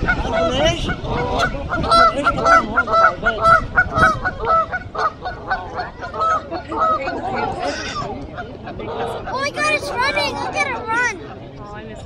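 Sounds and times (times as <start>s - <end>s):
geese honking: 0.0s - 8.0s.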